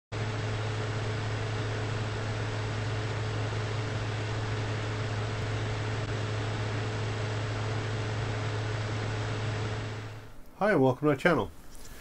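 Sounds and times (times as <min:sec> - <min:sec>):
low electrical hum: 0:00.2 - 0:12.0
constant hiss: 0:07.7 - 0:12.0.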